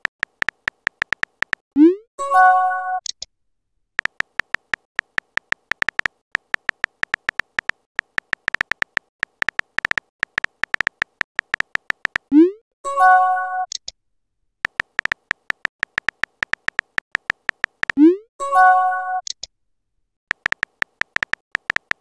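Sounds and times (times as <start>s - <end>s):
phone keyboard tap clicks: 0.0s - 1.6s, 4.0s - 12.3s, 14.7s - 18.0s, 20.3s - 22.0s.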